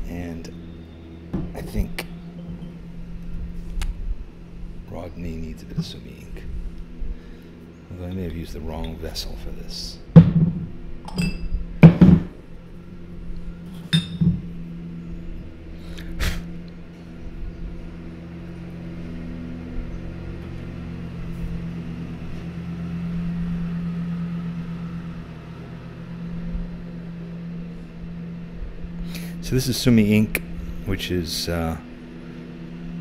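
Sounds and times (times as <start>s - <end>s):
steady low hum: 0.0s - 33.0s
ceramic vessel clinking: 11.1s - 11.5s, 13.9s - 14.4s.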